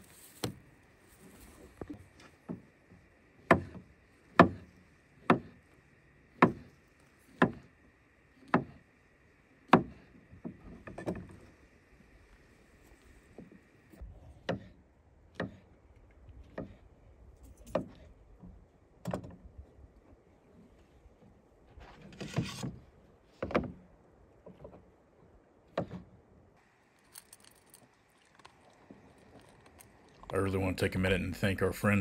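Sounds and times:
rustle: 0.0 - 14.4, 26.6 - 30.3
sharp knocks and clicks: 6.4 - 6.7.

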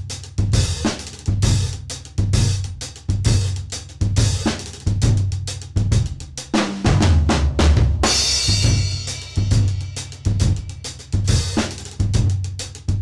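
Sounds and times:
fast snare and tom strokes: 0.0 - 13.0.

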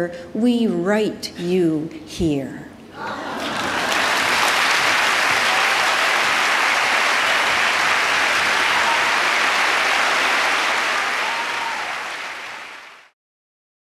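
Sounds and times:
audience applauding: 3.1 - 13.1.

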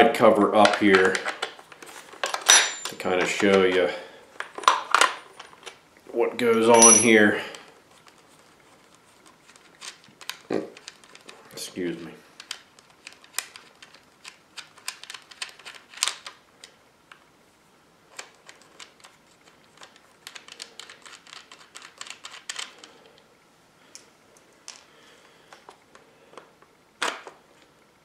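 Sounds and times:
metal and plastic clicks and rattles: 8.8 - 11.4, 12.4 - 16.8, 18.1 - 23.0.

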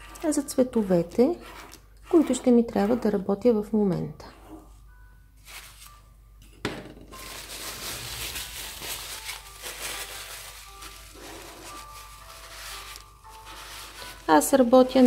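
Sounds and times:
paper towel crinkling and rubbing: 5.4 - 6.0, 7.2 - 15.0.

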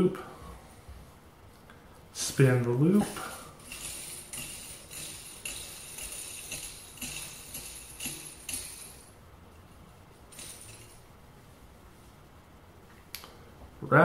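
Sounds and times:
metal spinner tool jingling: 2.9 - 11.2.

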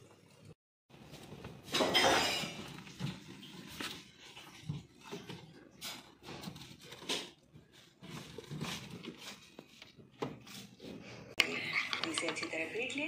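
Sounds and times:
rustling vegetables in basket: 0.9 - 11.2.

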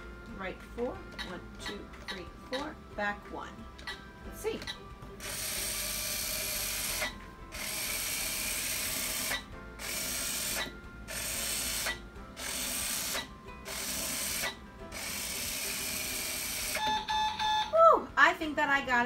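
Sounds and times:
small gear motors whirring: 5.2 - 16.9.

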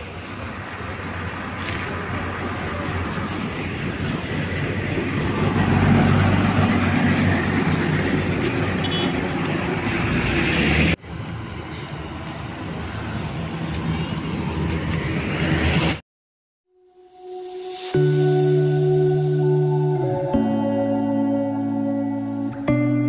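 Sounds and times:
vehicles passing on road: 0.0 - 16.0, 18.1 - 23.0.

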